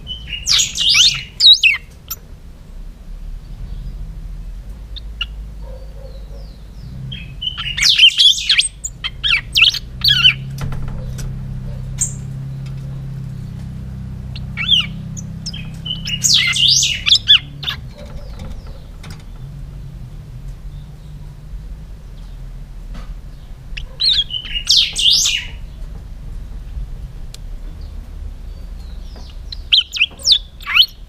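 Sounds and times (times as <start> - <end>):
bird whistling song: 0.0 - 2.2, 5.0 - 10.5, 11.7 - 12.3, 14.3 - 18.9, 23.3 - 25.8, 28.5 - 31.0.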